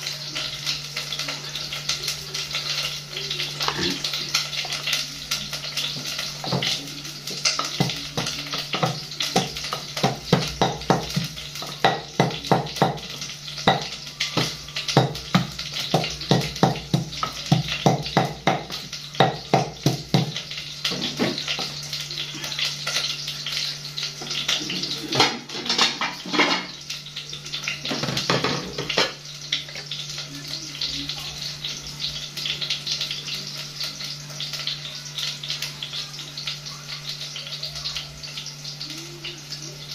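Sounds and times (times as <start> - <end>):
wooden pestle pounding in mortar: 7.8 - 20.4.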